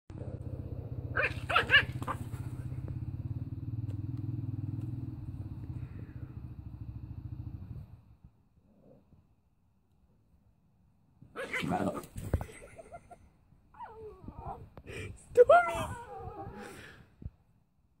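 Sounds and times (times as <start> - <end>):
low pulsing rumble: 0.1 - 8.4
puppy yapping: 1.1 - 2.4.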